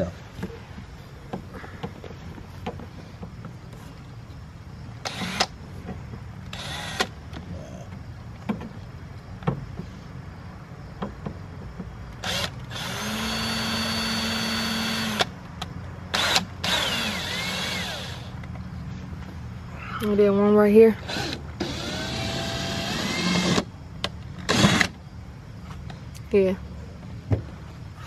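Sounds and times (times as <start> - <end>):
electric drill drilling: 12.2 - 15.3, 16.2 - 18.3, 21.1 - 23.6, 24.5 - 24.9.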